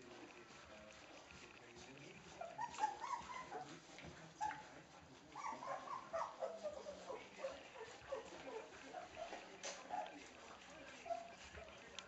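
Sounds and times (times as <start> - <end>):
puppies whimpering and squeaking: 2.3 - 11.9.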